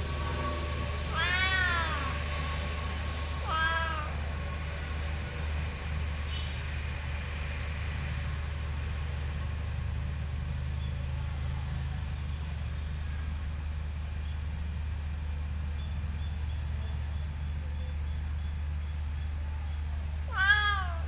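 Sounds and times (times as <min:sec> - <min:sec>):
vehicle engine humming: 0:00.0 - 0:21.0.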